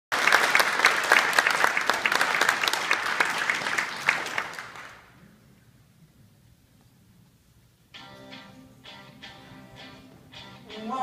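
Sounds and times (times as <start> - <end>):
audience applauding: 0.1 - 5.2.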